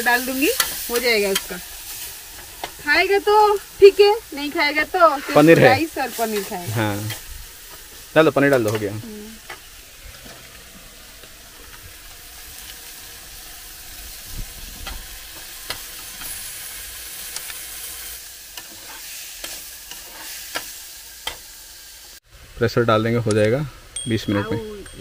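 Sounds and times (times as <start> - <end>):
food sizzling in a pan: 0.0 - 23.0
metal spatula scraping a pan: 14.8 - 21.4.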